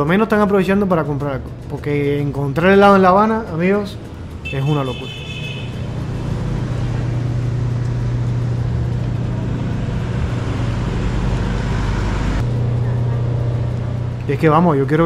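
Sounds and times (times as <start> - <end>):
car engine running: 0.0 - 15.0
traffic rushing: 0.0 - 15.0.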